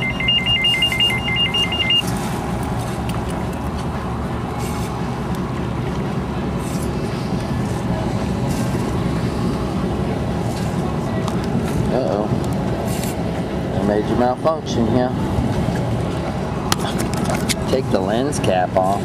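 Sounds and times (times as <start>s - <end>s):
mobile phone ringing: 0.0s - 2.1s
low engine rumble: 0.0s - 19.0s.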